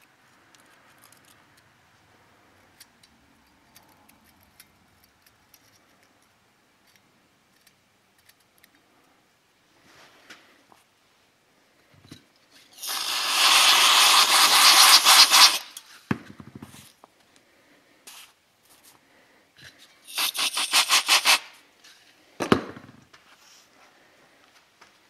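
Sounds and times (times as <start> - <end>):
rapid rasping rubbing: 12.9 - 15.8, 20.1 - 21.5.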